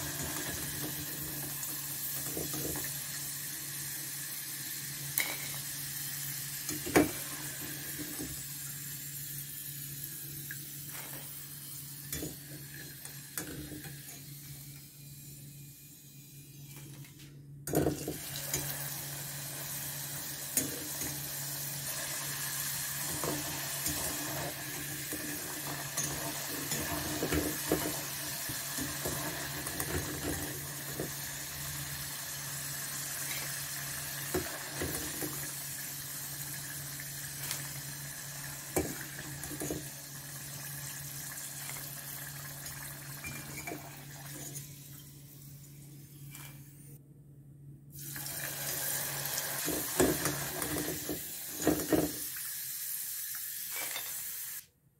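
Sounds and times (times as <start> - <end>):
chips sizzling in hot oil: 18.2 - 30.0, 30.6 - 38.9, 48.0 - 51.6.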